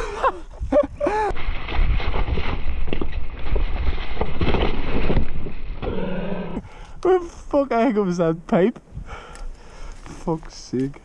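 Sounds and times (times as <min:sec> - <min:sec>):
mountain bike rattling over rocks: 0:01.1 - 0:05.9.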